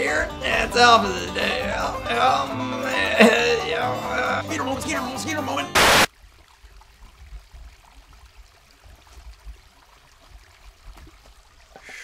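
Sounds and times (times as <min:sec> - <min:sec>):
creek trickling over rocks: 0:06.1 - 0:12.0.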